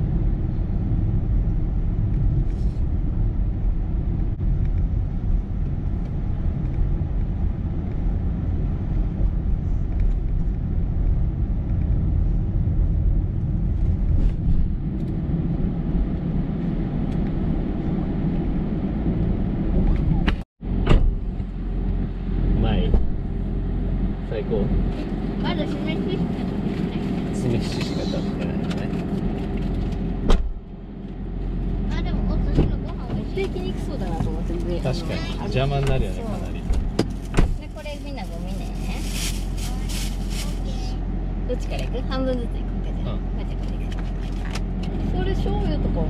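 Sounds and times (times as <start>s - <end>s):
car engine and tyres rumbling: 0.0s - 46.0s.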